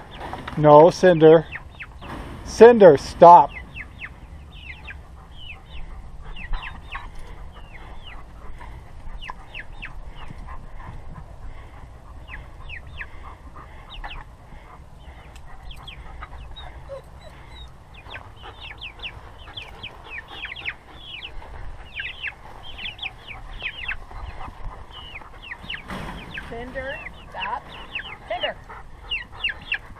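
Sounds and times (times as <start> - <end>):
chicks peeping: 0.0 - 29.9.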